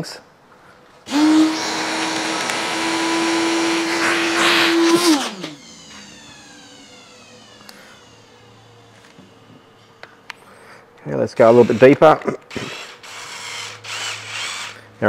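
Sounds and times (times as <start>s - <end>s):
vacuum cleaner motor humming: 1.1s - 10.5s
vacuum motor whine spinning down: 1.1s - 10.6s.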